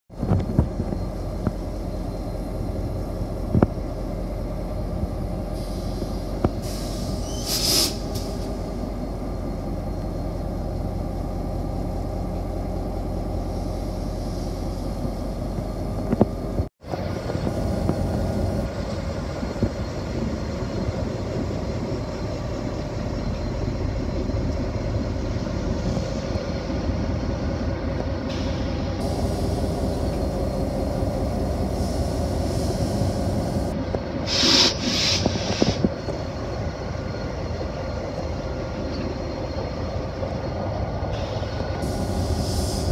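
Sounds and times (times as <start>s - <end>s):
locomotive engine rumbling: 0.1s - 42.9s
short hiss: 5.6s - 8.5s, 31.7s - 35.8s.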